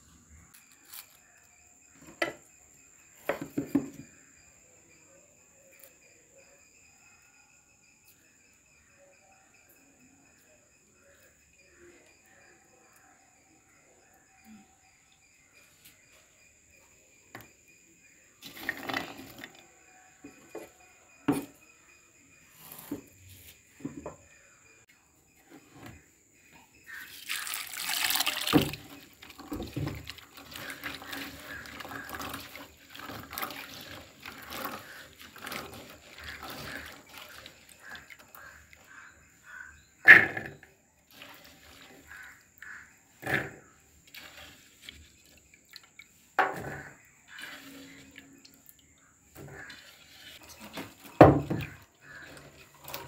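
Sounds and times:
liquid pouring into clay pot: 18.4s - 19.6s, 26.9s - 43.5s, 44.1s - 48.8s, 49.4s - 53.0s
clay pots knocking: 28.0s - 39.0s, 50.5s - 53.0s.

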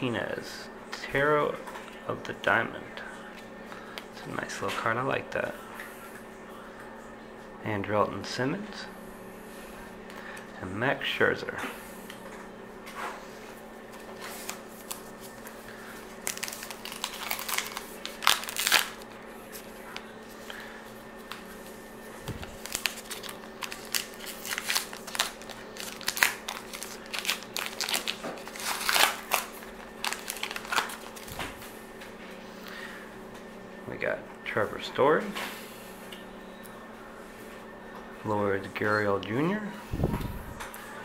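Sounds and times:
wrapper crinkling and tearing: 16.2s - 19.1s, 22.3s - 31.4s.

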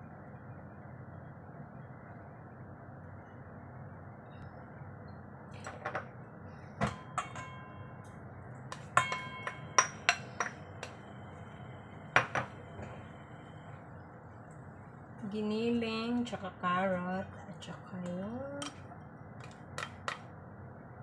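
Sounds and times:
spoon knocking on metal bowl: 6.8s - 7.6s, 8.8s - 11.0s.

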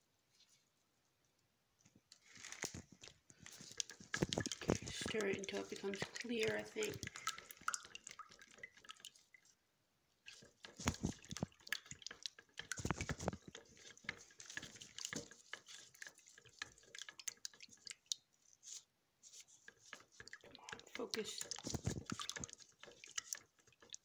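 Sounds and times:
liquid sloshing and dripping: 2.1s - 24.0s
stirrer tapping plastic container: 2.6s - 9.3s, 10.3s - 24.0s.

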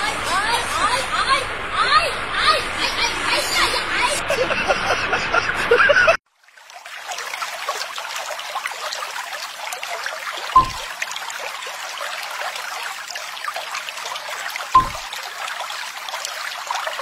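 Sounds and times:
water trickling: 6.3s - 17.0s
short thump: 10.6s - 10.9s, 14.8s - 15.1s.

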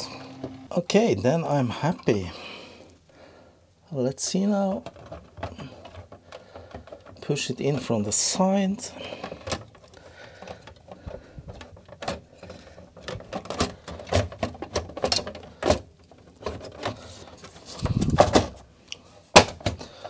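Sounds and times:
plastic case clicking and scraping: 4.6s - 18.7s, 19.3s - 20.0s.

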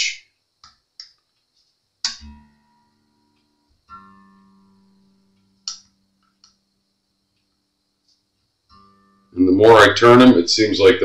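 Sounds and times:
sharp click: 0.6s - 2.4s, 5.6s - 6.6s
guitar strings plucked: 2.0s - 6.7s, 8.7s - 11.0s.

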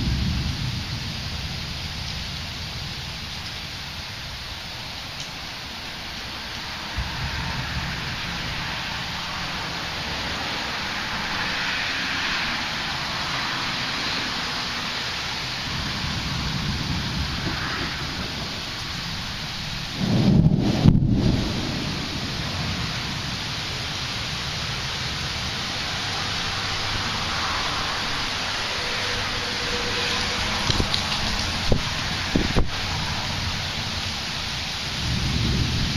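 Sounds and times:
loud thunderclap rumbling: 0.0s - 3.5s, 6.9s - 11.6s, 15.6s - 34.2s, 34.9s - 35.9s
steady rain hissing: 0.0s - 35.9s.

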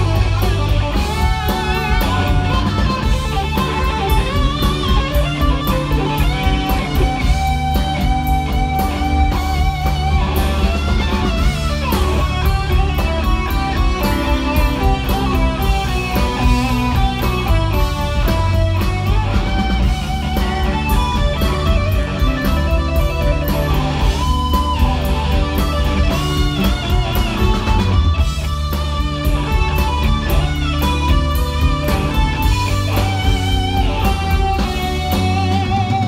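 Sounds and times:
bass guitar: 0.0s - 36.0s
electric guitar with bent notes: 0.0s - 36.0s
steady drum beat: 0.0s - 36.0s.

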